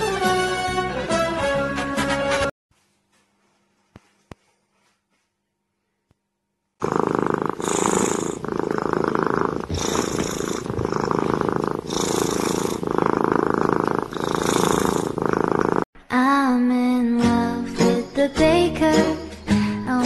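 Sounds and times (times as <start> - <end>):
kitten purring: 6.8 - 15.9.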